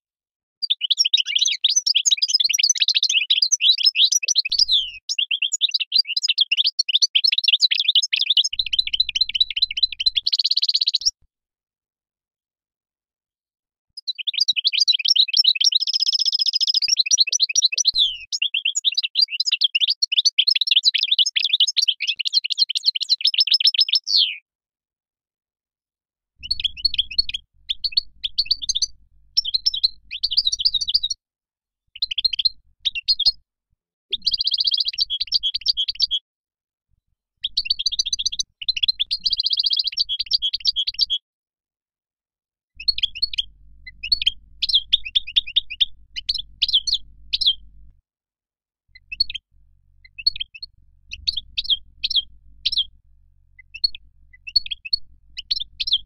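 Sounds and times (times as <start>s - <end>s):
finch singing: 0.6s - 11.2s, 14.0s - 24.4s, 26.4s - 31.2s, 32.0s - 33.4s, 34.1s - 36.2s, 37.4s - 41.2s, 42.8s - 47.7s, 48.9s - 56.0s.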